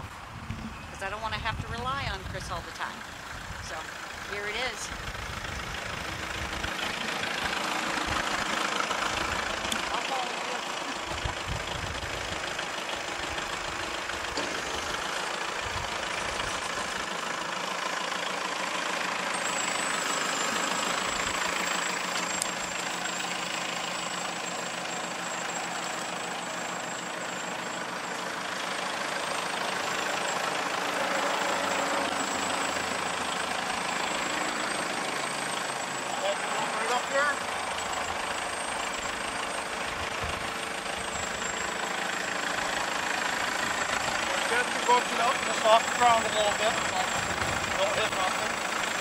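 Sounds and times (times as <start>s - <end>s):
tractor diesel engine running: 0.0s - 49.0s.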